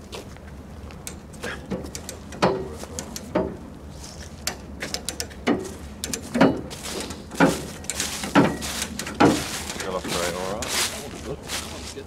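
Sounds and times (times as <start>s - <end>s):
metal ratchet clunking and clicking: 1.0s - 3.6s, 4.4s - 10.0s.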